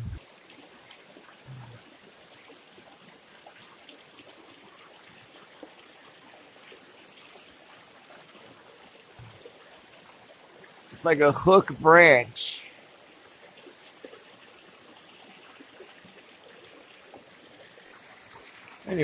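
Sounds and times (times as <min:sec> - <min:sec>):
river rushing: 0:10.9 - 0:12.8.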